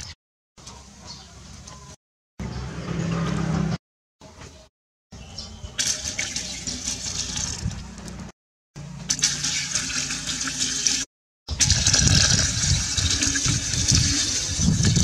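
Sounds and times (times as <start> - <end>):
water pouring into jar: 5.8 - 8.0, 9.1 - 15.0.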